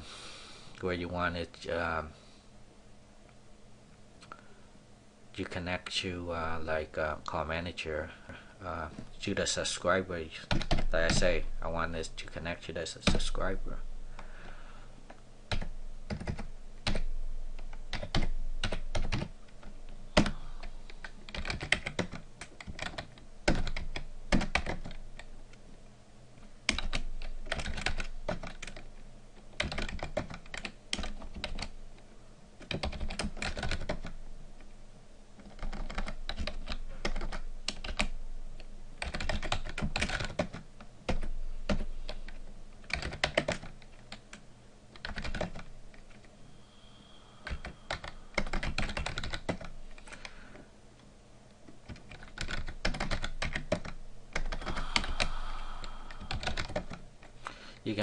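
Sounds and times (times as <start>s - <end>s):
computer keyboard typing: 10.4s - 11.4s, 15.5s - 25.3s, 26.6s - 28.9s, 29.5s - 31.8s, 32.6s - 34.2s, 35.4s - 38.2s, 39.0s - 46.3s, 47.4s - 50.2s, 51.8s - 55.3s, 56.1s - 57.0s.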